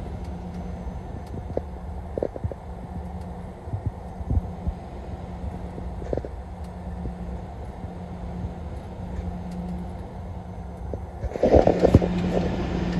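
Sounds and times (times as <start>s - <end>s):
engine and road drone in cab: 0.0s - 12.9s
rough noise on microphone: 10.9s - 12.9s.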